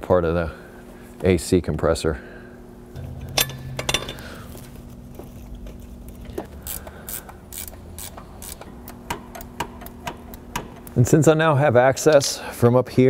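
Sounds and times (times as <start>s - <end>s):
wrench clicking on bolts: 6.4s - 11.0s.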